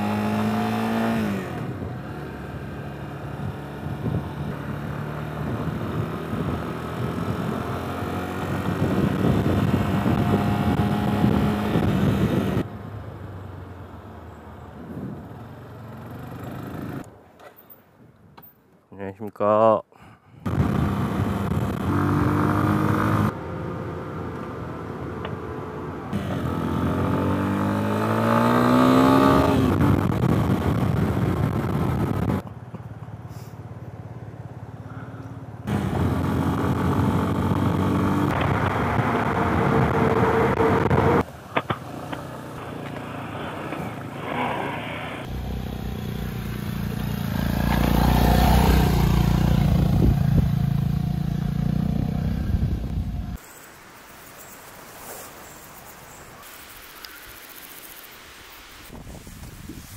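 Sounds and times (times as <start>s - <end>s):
motorcycle engine accelerating: 0.0s - 12.7s, 20.5s - 25.4s, 26.1s - 32.4s, 34.4s - 53.4s
wind rush: 3.3s - 12.7s, 28.6s - 32.4s, 47.4s - 50.8s, 58.7s - 59.9s.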